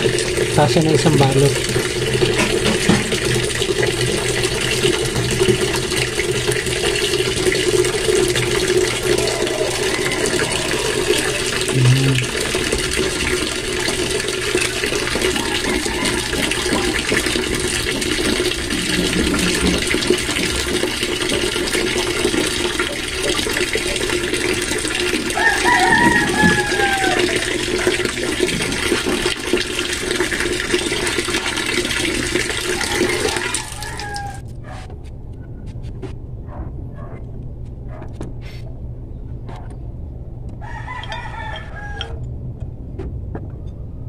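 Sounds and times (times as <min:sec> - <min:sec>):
low hum: 0:08.1 - 0:13.7, 0:34.4 - 0:44.0
steady rushing noise: 0:08.6 - 0:11.8.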